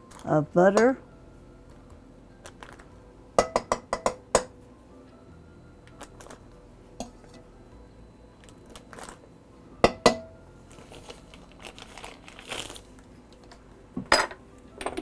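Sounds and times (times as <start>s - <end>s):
paper wrapper crinkling: 10.7s - 13.5s.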